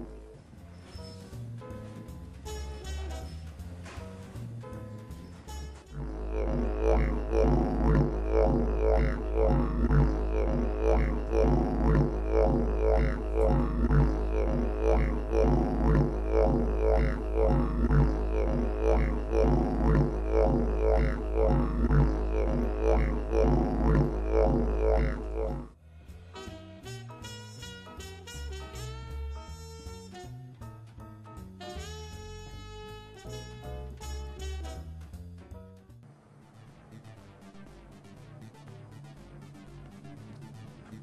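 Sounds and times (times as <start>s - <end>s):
droning electronic music: 5.4s - 25.8s, 36.2s - 41.0s.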